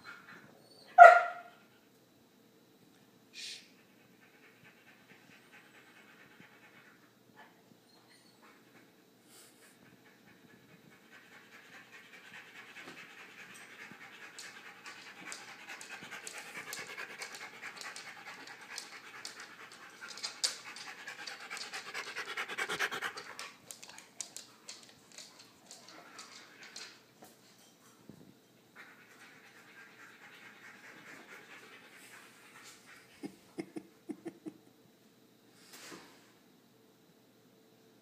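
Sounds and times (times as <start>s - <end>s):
dog panting rapidly: 4.0s - 7.0s, 9.8s - 25.2s.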